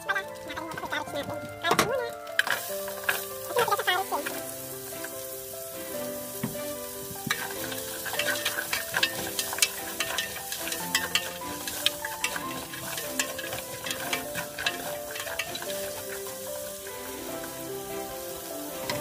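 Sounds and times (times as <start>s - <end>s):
sausage and carrot sizzling in pot: 0.0s - 19.0s
spatula scraping a pot: 2.4s - 4.4s, 6.6s - 19.0s.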